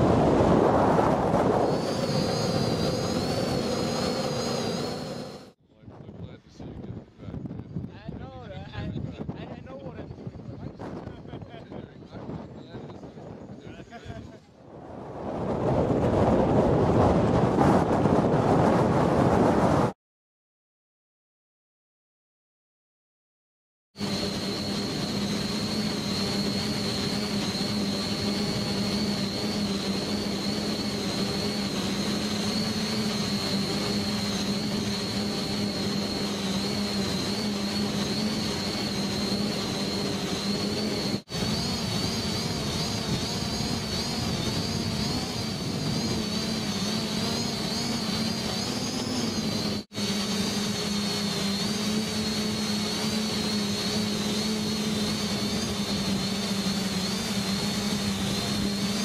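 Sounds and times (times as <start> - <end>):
drone motors whining: 0.0 - 5.6, 24.0 - 59.0.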